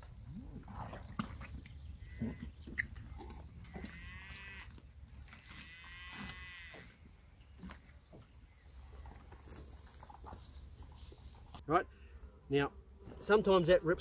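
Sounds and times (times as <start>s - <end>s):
distant sheep bleating: 3.8s - 4.7s, 5.6s - 6.9s.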